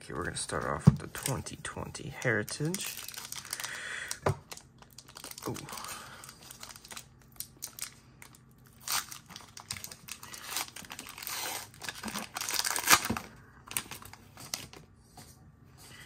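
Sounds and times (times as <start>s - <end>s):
card pack wrapper tearing and crinkling: 2.2s - 14.8s.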